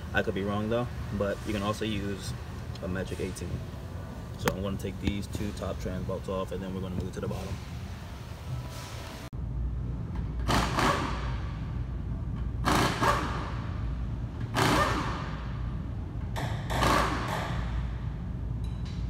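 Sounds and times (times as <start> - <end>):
steady low hum: 0.0 - 19.0
wrench noisy bursts: 10.4 - 11.6, 12.6 - 13.8, 14.4 - 15.6, 16.4 - 17.8.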